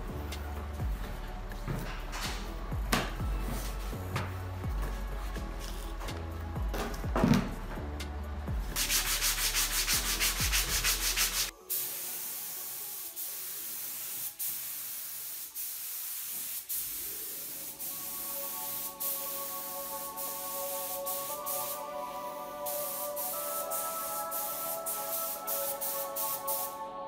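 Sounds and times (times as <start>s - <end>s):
rhythmic rubbing strokes: 8.8s - 11.5s
spray gun hissing: 8.8s - 26.8s.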